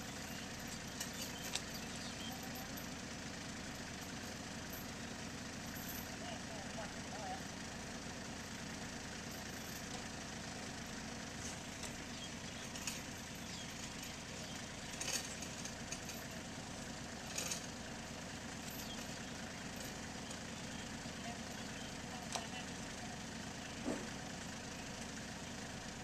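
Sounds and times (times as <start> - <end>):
tractor engine idling: 0.0 - 26.0.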